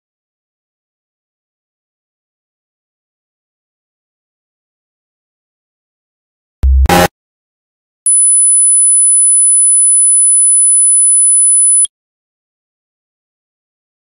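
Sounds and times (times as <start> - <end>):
high-pitched electronic sine tone: 6.6 - 7.1, 8.1 - 11.9.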